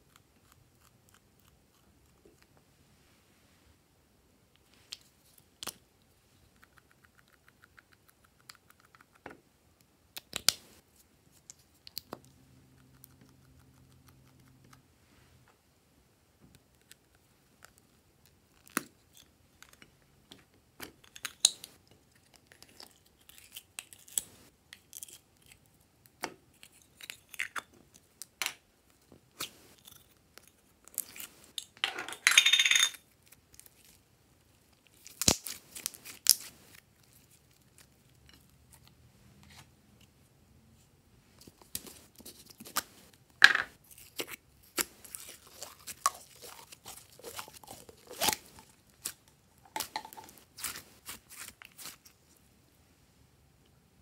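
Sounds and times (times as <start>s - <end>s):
slime tearing: 34.9s - 37.9s, 43.8s - 49.2s
sticky slime crackles: 43.8s - 49.3s, 50.2s - 52.1s.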